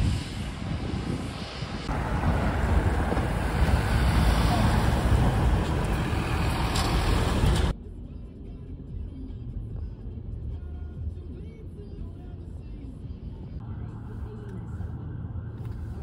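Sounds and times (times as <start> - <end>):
vehicles driving past: 0.0 - 7.8.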